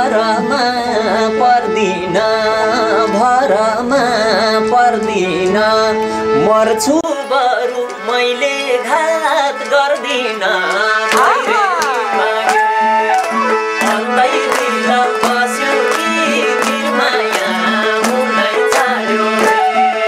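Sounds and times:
man singing: 0.0s - 13.2s, 13.8s - 20.0s
harmonium chords: 0.0s - 20.0s
hand drum: 9.3s - 20.0s.

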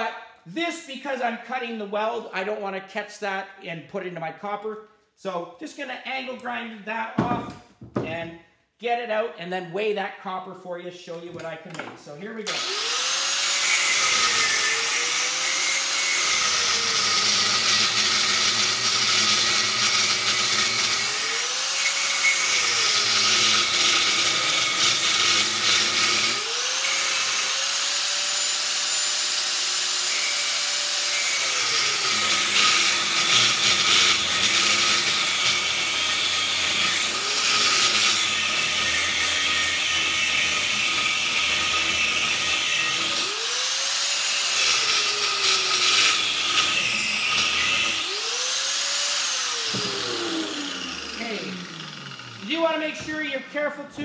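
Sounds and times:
angle grinder cutting steel: 12.4s - 53.1s.

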